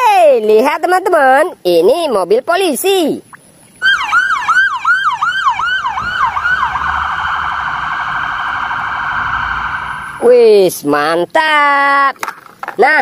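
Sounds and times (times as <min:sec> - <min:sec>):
police car siren wailing: 0:03.8 - 0:10.4.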